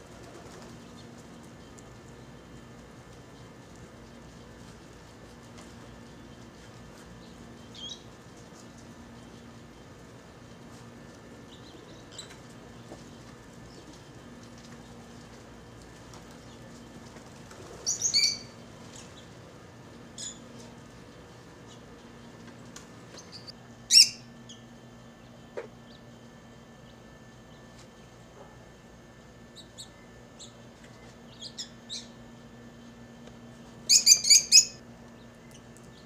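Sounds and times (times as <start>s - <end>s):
faint low hum: 0.0s - 36.0s
birds chirping: 0.3s - 28.1s, 29.3s - 33.0s, 33.8s - 36.0s.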